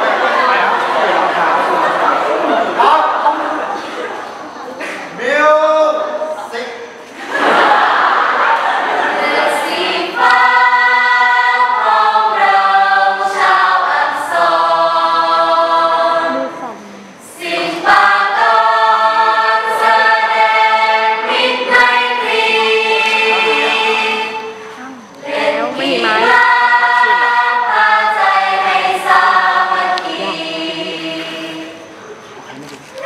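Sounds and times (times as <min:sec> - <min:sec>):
crowd noise: 0:00.0 - 0:33.0
group singing in unison: 0:07.2 - 0:32.2.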